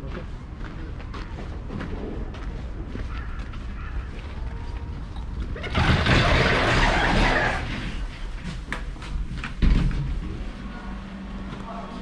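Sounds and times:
sliding doors opening with rush: 0:05.5 - 0:10.6.

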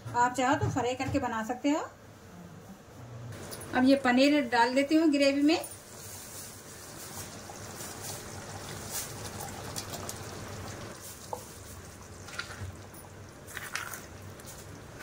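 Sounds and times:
gravy bubbling in a pan: 0:06.5 - 0:15.0
cheese cubes plopping into pan: 0:12.2 - 0:15.0.

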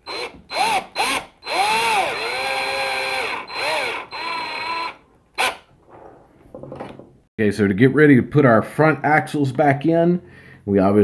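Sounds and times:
cordless drill motor: 0:00.0 - 0:05.6.

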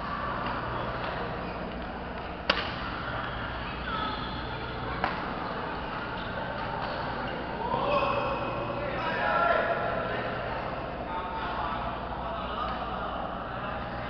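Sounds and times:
badminton hall background din: 0:00.0 - 0:14.0
racket hitting shuttlecock: 0:02.4 - 0:02.9.

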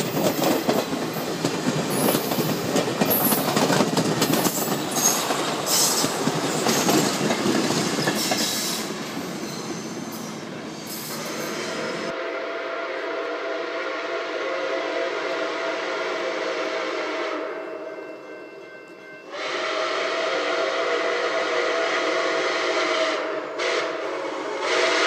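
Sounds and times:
steam locomotive whistle blasts: 0:08.2 - 0:18.2, 0:19.2 - 0:25.0.

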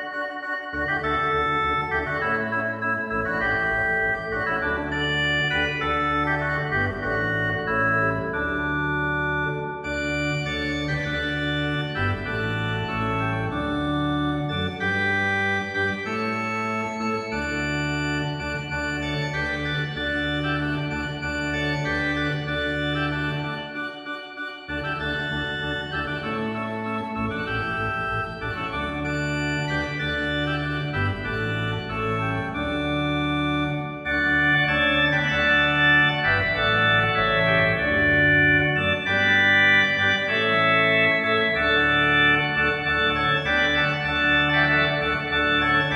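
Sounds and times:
background music with held chords: 0:00.0 - 0:45.9.

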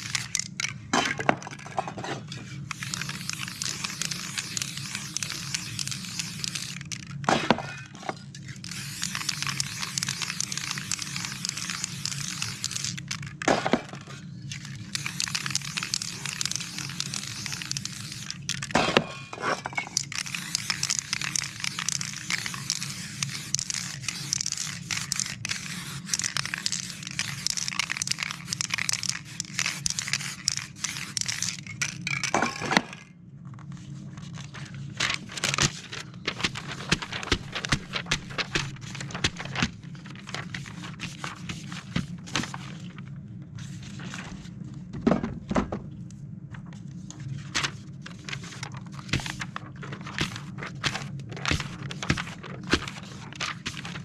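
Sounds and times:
spray paint can hissing: 0:00.0 - 0:00.5, 0:02.7 - 0:07.1, 0:08.6 - 0:13.2, 0:14.6 - 0:18.7, 0:19.9 - 0:32.3.

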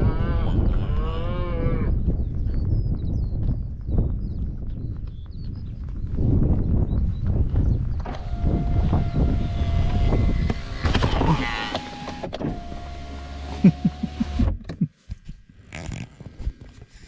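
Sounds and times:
cattle hooves clopping on tarmac: 0:02.5 - 0:08.0
electric window motor whining: 0:08.1 - 0:14.6.

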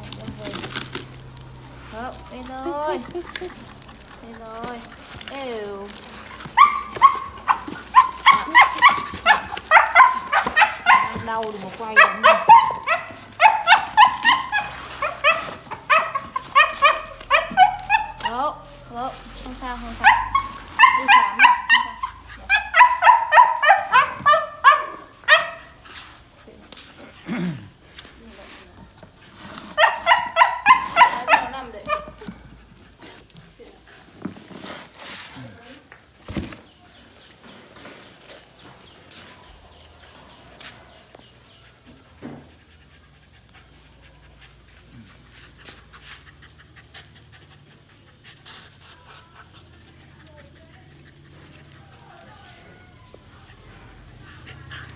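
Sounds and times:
stalks crackling and rustling: 0:00.0 - 0:27.1, 0:27.8 - 0:41.4
puppy panting: 0:02.5 - 0:18.9, 0:41.3 - 0:52.4, 0:53.6 - 0:54.9
puppy yelping: 0:05.9 - 0:18.8, 0:19.9 - 0:25.8, 0:29.6 - 0:32.4.

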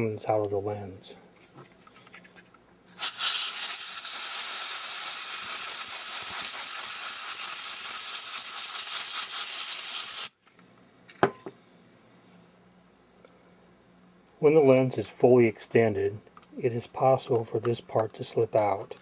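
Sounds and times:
compressed air spraying hiss: 0:02.9 - 0:10.4.

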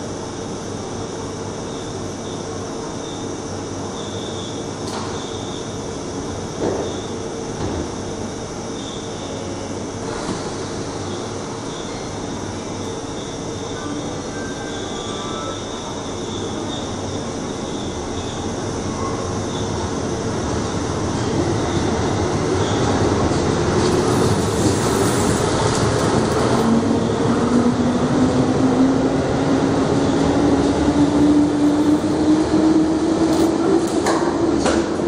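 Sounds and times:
electric train motor whine: 0:22.8 - 0:33.6.

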